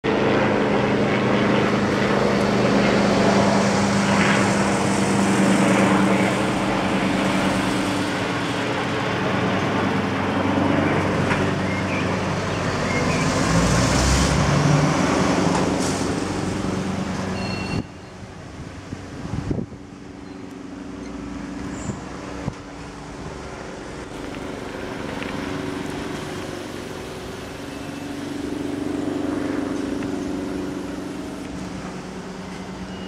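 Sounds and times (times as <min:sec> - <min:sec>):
helicopter engine and rotor drone: 0:00.0 - 0:33.0.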